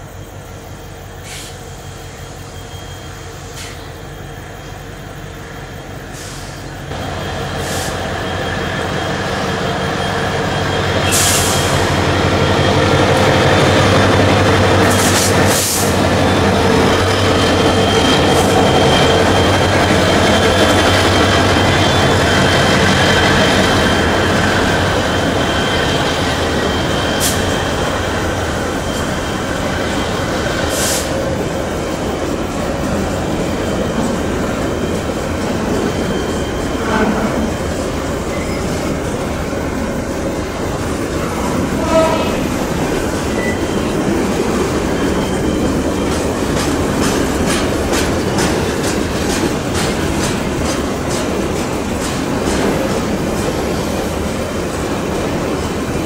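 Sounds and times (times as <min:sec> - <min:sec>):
diesel locomotives passing: 0:00.0 - 0:56.0
high-pitched wheel squeals: 0:07.4 - 0:31.5, 0:33.3 - 0:40.0, 0:40.6 - 0:47.1.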